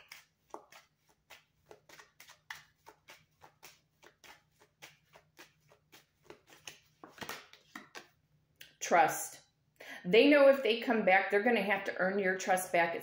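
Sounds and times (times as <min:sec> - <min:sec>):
cards being shuffled: 0:00.0 - 0:08.2.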